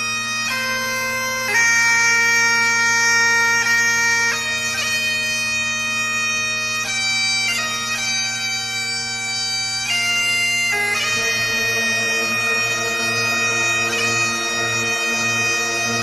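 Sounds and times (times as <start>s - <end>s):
bagpipe music: 0.0s - 16.0s.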